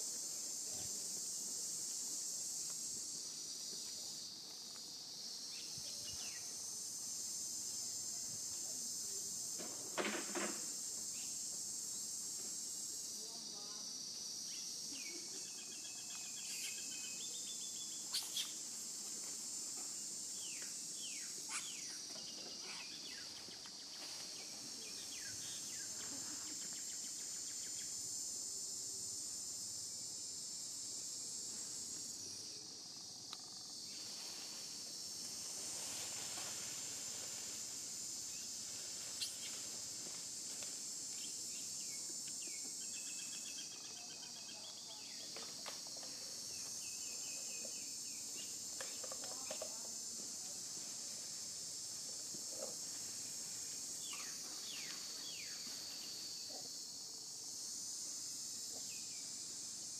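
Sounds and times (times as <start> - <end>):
high-pitched insect chorus: 0.0 - 59.9.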